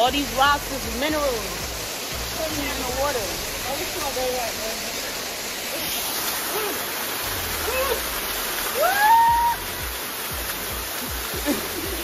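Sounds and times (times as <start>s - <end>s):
waterfall rushing onto rocks: 0.0s - 12.0s
person crying out: 6.4s - 6.9s, 7.6s - 8.1s, 8.8s - 9.6s.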